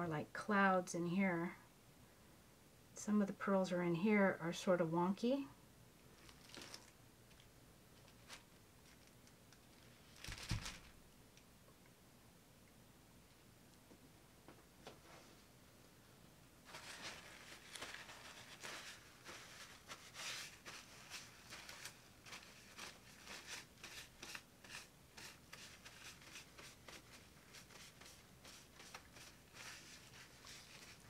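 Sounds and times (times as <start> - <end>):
faint rustling and clicking: 6.0 - 12.0.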